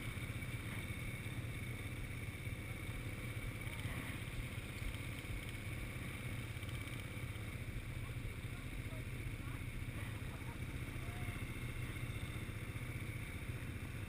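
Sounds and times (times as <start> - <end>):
quad bike engines idling: 0.0 - 14.0.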